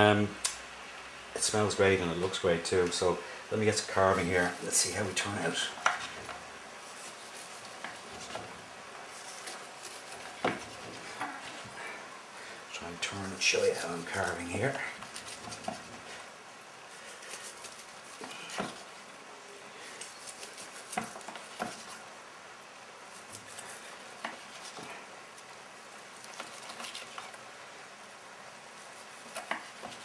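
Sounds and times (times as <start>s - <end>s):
knife sawing through meat: 13.8s - 16.2s, 28.8s - 30.0s.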